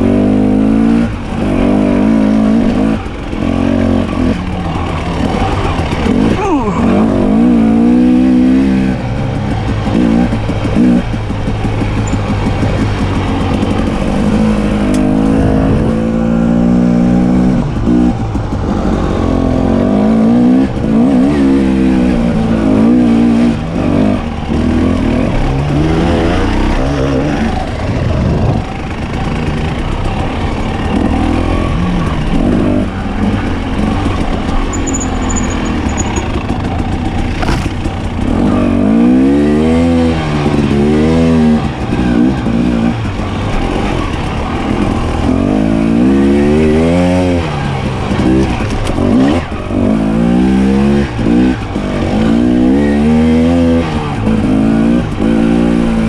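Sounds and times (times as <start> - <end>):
dirt bike engine revving: 0.0 - 56.0
wind and riding noise: 0.0 - 56.0.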